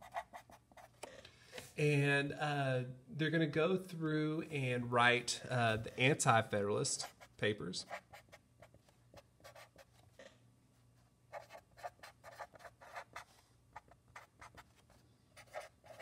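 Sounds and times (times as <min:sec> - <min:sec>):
marker scratching on paper: 0:00.0 - 0:01.0, 0:07.0 - 0:10.0, 0:11.3 - 0:16.0
faint low hum: 0:00.0 - 0:16.0.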